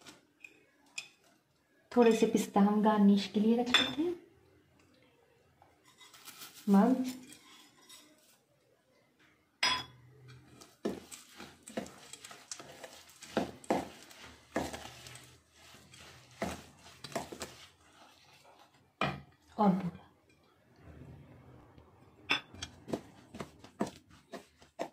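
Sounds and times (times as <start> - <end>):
spoon scraping metal bowl: 5.8 - 8.4, 10.2 - 19.4.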